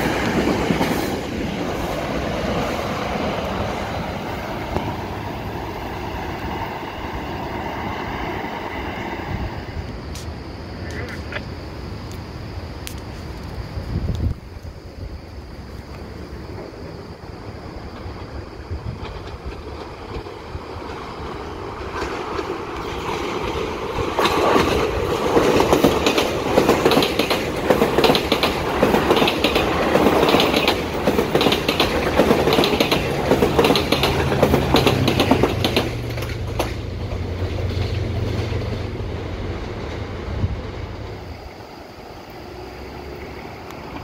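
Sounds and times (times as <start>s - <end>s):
train wheels clickety-clack: 0.0s - 5.3s, 17.8s - 41.3s
train engine drone: 0.0s - 44.0s.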